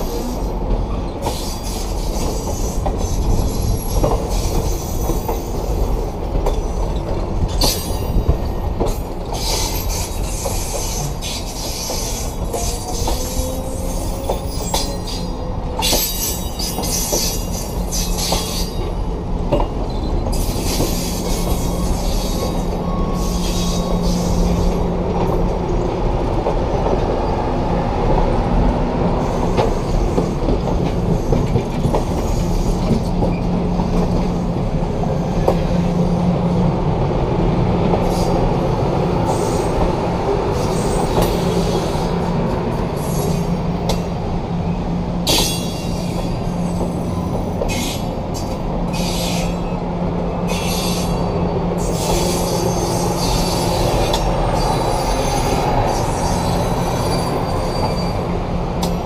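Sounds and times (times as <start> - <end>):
train wheels rumbling: 0.0 - 59.0
high-pitched wheel squeal: 51.8 - 58.3.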